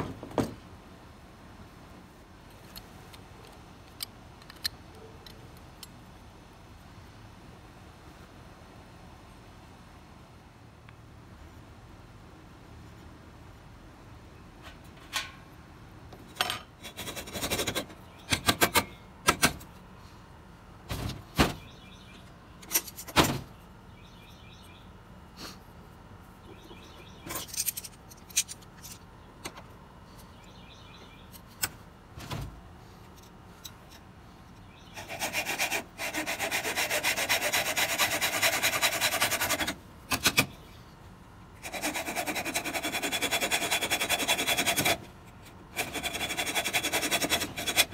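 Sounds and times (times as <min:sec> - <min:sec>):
hand tools and metal knocking: 0:14.6 - 0:15.5, 0:16.1 - 0:19.7, 0:22.6 - 0:23.5, 0:26.4 - 0:30.3
hacksaw cutting sheet metal: 0:35.0 - 0:40.5, 0:41.6 - 0:45.1, 0:45.7 - 0:47.9.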